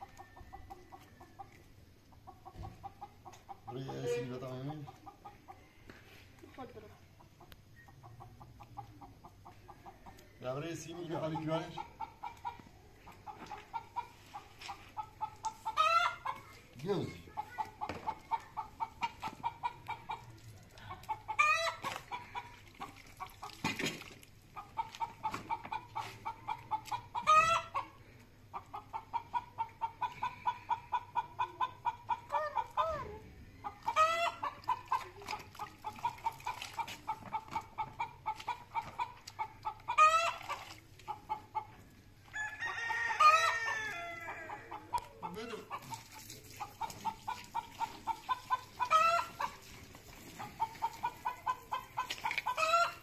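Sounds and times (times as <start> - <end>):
chickens clucking: 0.0 - 53.0
chicken cackling call: 14.9 - 16.4, 21.1 - 22.5, 24.8 - 27.9, 28.6 - 35.0, 37.8 - 41.7, 42.3 - 49.7, 50.3 - 53.0.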